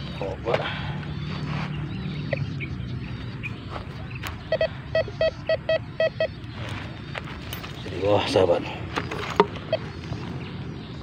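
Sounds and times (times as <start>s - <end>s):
metal detector short beeps: 4.5s - 6.4s.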